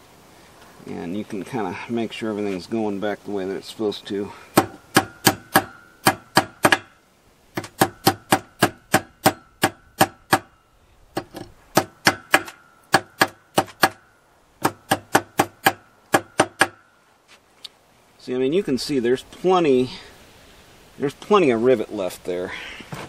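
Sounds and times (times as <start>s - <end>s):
hammer striking metal on anvil: 4.6s - 6.9s, 7.7s - 10.5s.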